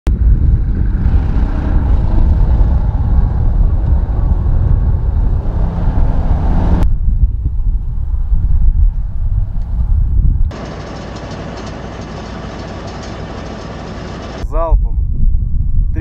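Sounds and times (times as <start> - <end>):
truck diesel engine rumbling: 10.5 - 14.6.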